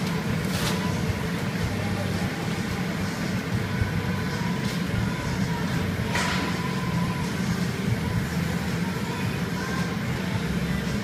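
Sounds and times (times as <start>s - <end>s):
factory equipment rumbling: 0.0s - 11.0s.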